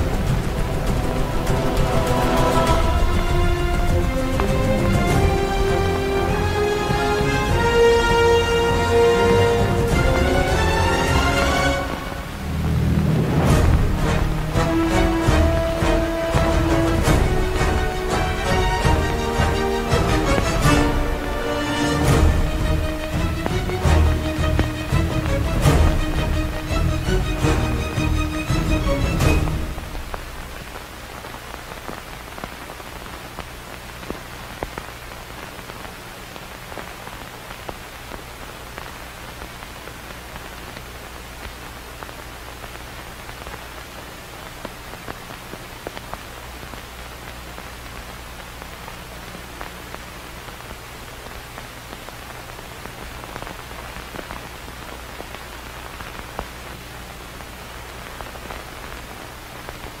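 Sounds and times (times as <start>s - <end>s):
low hum: 0.0s - 38.1s
film soundtrack hiss and crackle: 0.0s - 60.0s.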